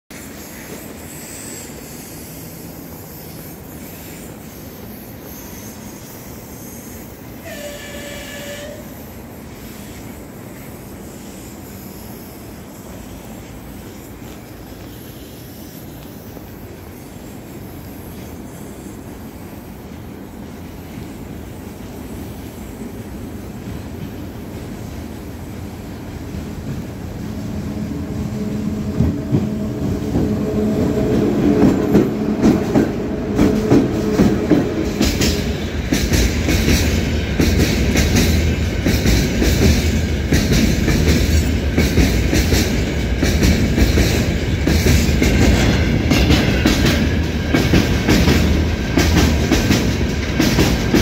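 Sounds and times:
freight train rumbling: 0:00.0 - 0:51.0
train horn blast: 0:07.4 - 0:09.1, 0:27.2 - 0:35.0.

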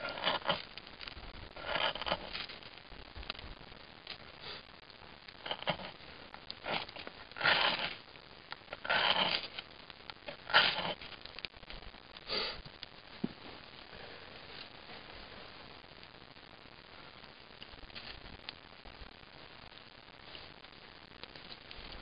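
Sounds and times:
knife shaving wood: 0:00.0 - 0:02.7, 0:05.4 - 0:08.0, 0:08.7 - 0:11.5.

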